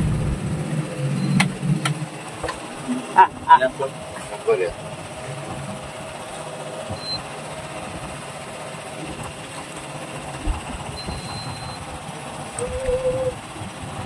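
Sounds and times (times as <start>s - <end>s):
boat engine idling: 0.0s - 14.0s.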